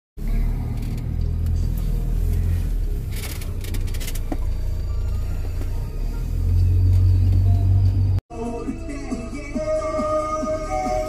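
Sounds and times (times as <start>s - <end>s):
car driving rumble: 0.2s - 8.2s
music playing: 0.2s - 11.0s.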